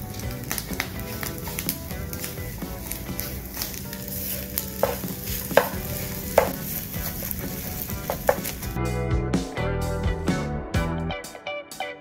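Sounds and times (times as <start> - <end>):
rice sizzling in a pan: 0.0 - 8.8
spatula scraping a pan: 0.5 - 8.7
spatula knocking against pan: 4.8 - 6.8, 7.8 - 8.6.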